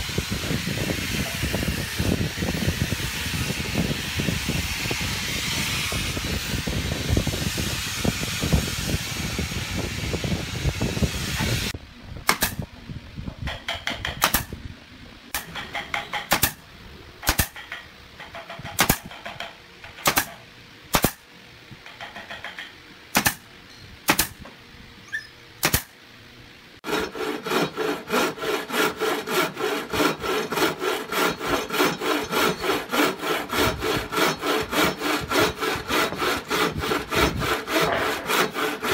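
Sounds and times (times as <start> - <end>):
pneumatic nailer firing: 12.2 - 12.7, 13.5 - 14.6, 15.3 - 16.6, 17.2 - 21.3, 21.9 - 23.5, 24.1 - 24.4, 25.6 - 26.0
hand saw cutting wood: 13.5 - 14.6, 15.4 - 16.6, 17.2 - 20.4, 23.2 - 23.4, 24.1 - 24.4, 25.6 - 25.9, 26.8 - 38.9.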